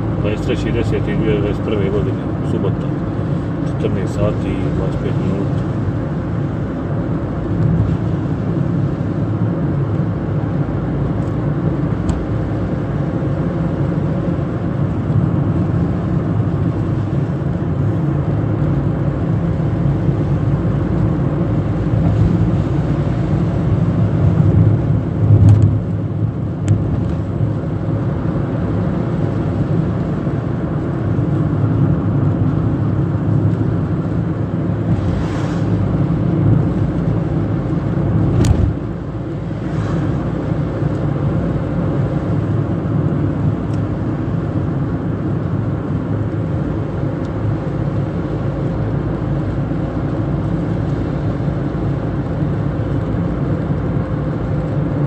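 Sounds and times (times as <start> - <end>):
car engine and road noise: 0.0 - 55.0.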